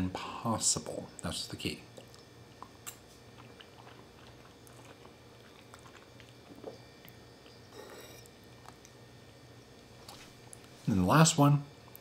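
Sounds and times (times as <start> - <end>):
faint chewing: 1.9 - 10.8.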